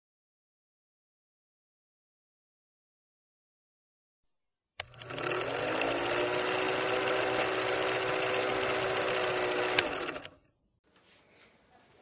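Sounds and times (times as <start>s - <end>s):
film projector rattling: 4.8s - 10.4s
motor hum: 4.8s - 10.4s.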